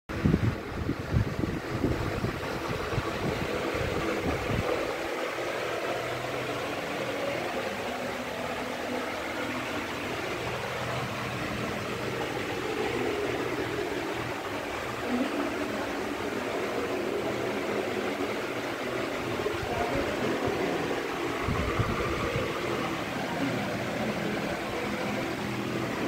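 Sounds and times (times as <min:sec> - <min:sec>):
wind buffeting microphone: 0:00.1 - 0:06.7, 0:09.9 - 0:26.0
machine hum and hiss: 0:00.2 - 0:26.0.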